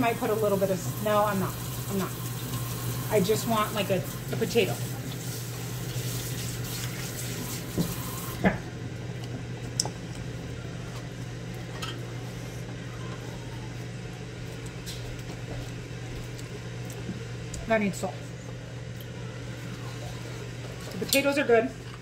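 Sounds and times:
steady low hum: 6.8 - 22.0.

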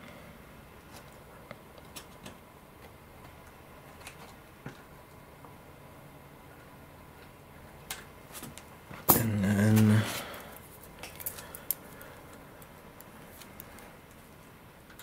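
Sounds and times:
small parts clicking and tapping: 10.5 - 15.0.

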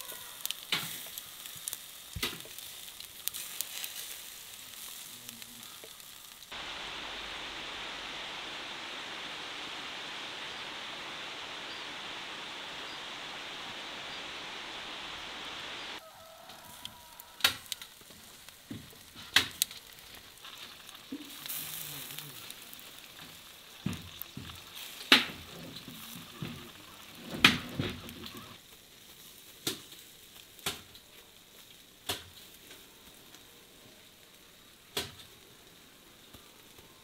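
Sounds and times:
faint sizzle: 0.0 - 37.0
fire crackling pops: 0.0 - 37.0.

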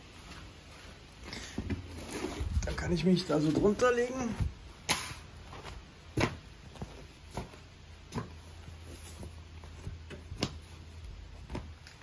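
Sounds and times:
knocks and scuffs on concrete: 3.4 - 12.0.

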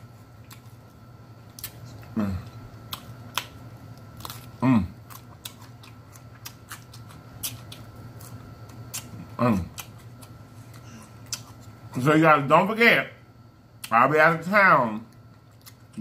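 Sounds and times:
person humming mm: 2.1 - 2.6.

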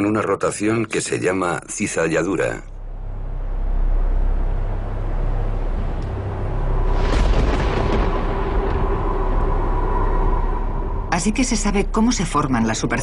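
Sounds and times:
low musical drone: 1.7 - 13.0
deep rumble of thunder: 5.6 - 11.6.

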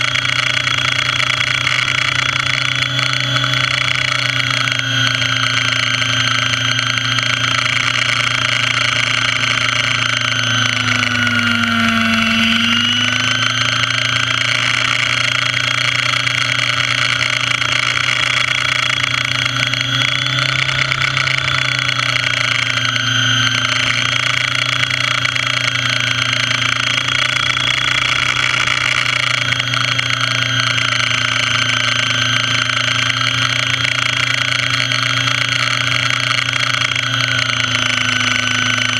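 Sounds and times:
model helicopter motor and rotor: 0.0 - 38.9.

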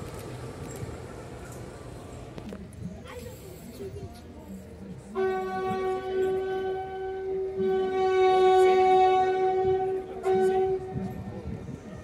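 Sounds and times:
locomotive horn blast: 5.1 - 11.3.

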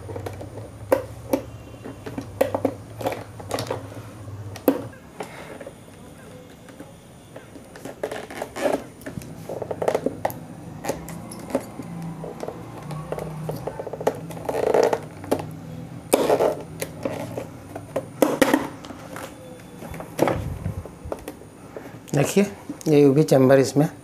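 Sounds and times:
rustling scrapes: 7.7 - 10.0, 16.1 - 17.8.

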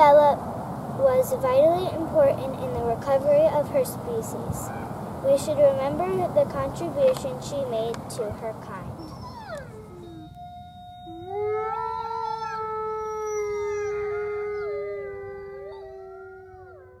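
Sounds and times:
wolves howling in chorus: 9.0 - 17.0.

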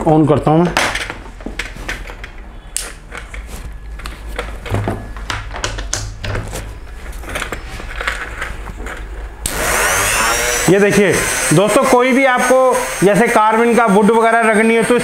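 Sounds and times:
hands clicking and tapping tool: 5.2 - 6.4
rotary tool high whine: 6.7 - 15.0.

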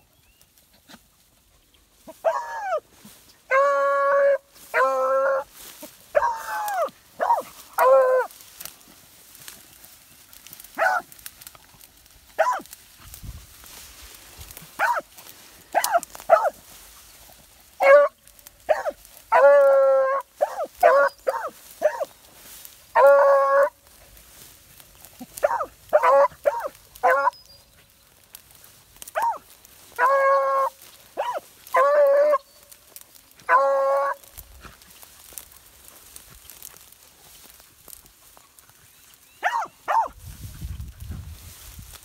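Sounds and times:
hounds barking: 2.0 - 2.9, 3.5 - 8.3, 10.6 - 11.2, 12.3 - 12.8, 14.6 - 16.7, 17.4 - 23.8, 25.1 - 27.4, 28.5 - 36.9, 39.4 - 40.2
hounds bawling: 2.1 - 2.9, 3.5 - 8.3, 17.8 - 22.1, 22.9 - 23.8, 25.1 - 27.4, 29.1 - 32.4, 33.3 - 34.3.

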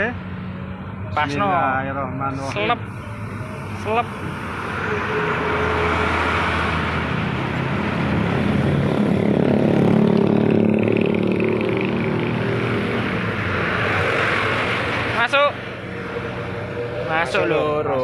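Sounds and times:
traffic engine rumble: 0.0 - 18.0.

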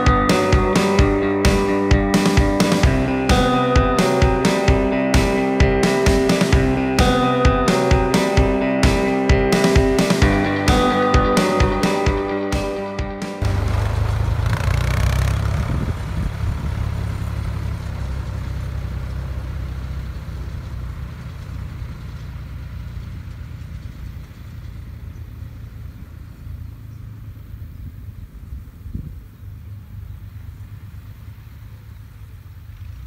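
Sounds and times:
tractor diesel engines driving: 0.0 - 33.0.

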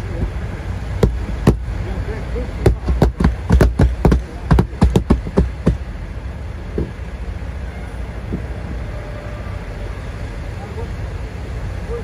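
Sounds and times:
palm thumping on windshield glass: 1.0 - 1.6, 2.6 - 5.9.

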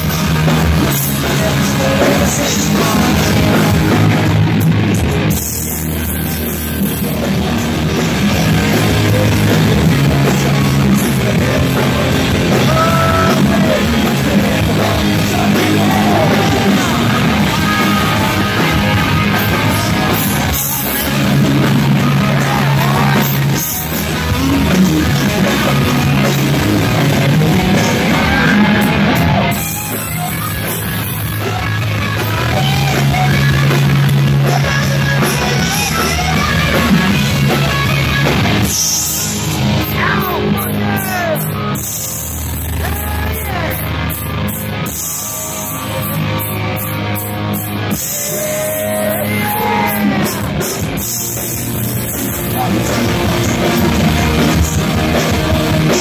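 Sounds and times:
person singing: 0.0 - 4.3, 8.4 - 30.6, 31.4 - 42.0, 44.8 - 51.5
live rock band playing: 0.0 - 56.0.

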